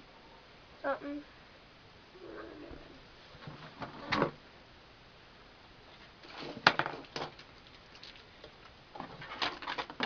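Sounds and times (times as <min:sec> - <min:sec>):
objects set down on workbench: 0:06.3 - 0:07.4.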